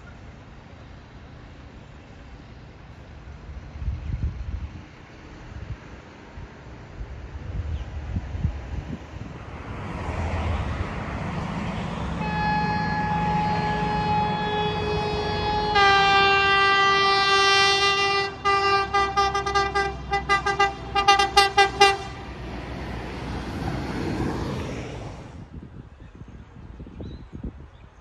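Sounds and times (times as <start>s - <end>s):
train running rumble: 0.2s - 25.5s
electric train horn: 12.1s - 22.4s.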